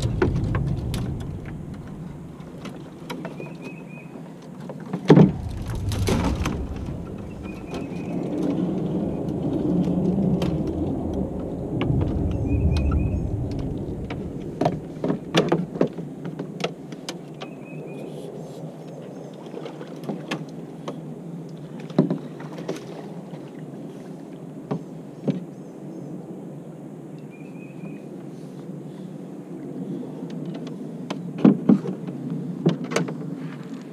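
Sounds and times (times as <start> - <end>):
heavy low rumble: 0.0 - 3.0, 5.1 - 15.8
paddle knocking canoe hull: 4.7 - 8.8.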